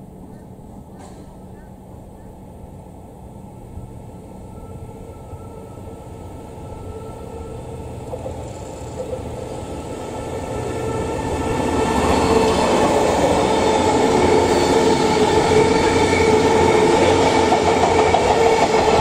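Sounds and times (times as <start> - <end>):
steady train whine: 0.0 - 19.0
train passing on rails: 0.0 - 19.0.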